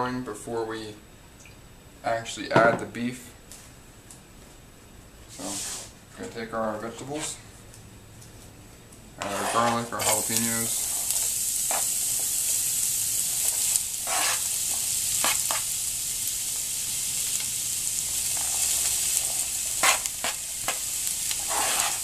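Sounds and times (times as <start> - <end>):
knife scraping a cutting board: 9.2 - 10.3, 14.0 - 14.4, 21.4 - 22.0
vegetables sizzling in a frying pan: 9.2 - 22.0.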